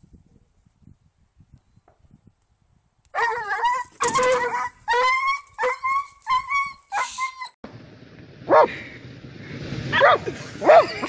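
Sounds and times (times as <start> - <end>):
dog yelping: 3.2 - 7.6, 10.0 - 11.0.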